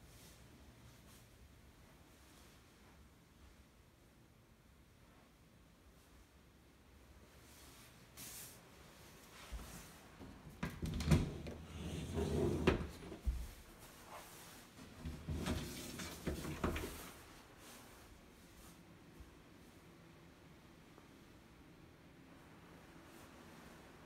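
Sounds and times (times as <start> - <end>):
closet doors knocking and clacking: 10.5 - 13.4.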